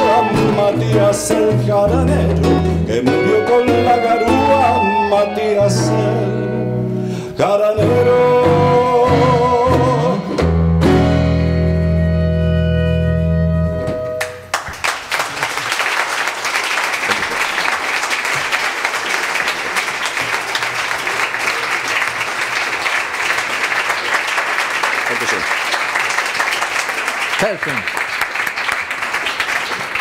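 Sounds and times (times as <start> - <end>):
person singing with vibrato: 0.0 - 10.7
audience applauding: 14.1 - 30.0.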